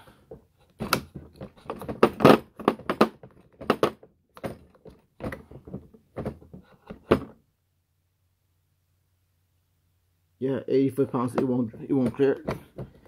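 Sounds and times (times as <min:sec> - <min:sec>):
wrench knocking against plastic case: 0:00.8 - 0:07.3.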